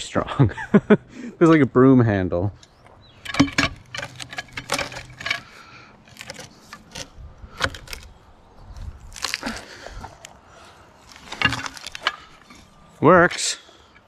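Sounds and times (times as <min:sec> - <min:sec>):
metal hook clinking against log: 0:03.2 - 0:05.4.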